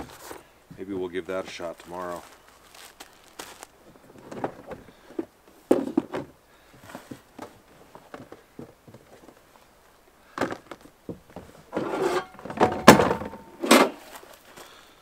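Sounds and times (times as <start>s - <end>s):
camp cooking gear clattering: 10.4s - 14.2s.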